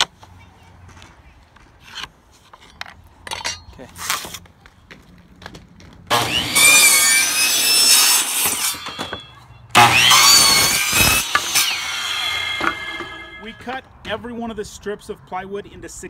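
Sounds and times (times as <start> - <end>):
miter saw cutting plywood: 6.1 - 13.6.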